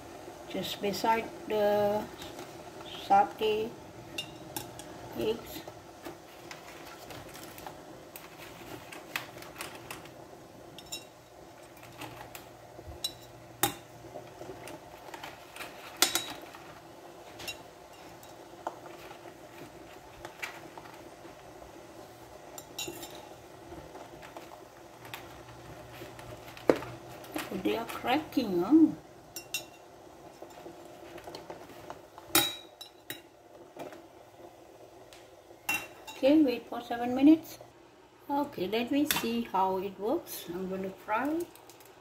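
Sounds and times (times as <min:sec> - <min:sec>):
eggs clinking against metal pot: 0:29.3 - 0:30.7.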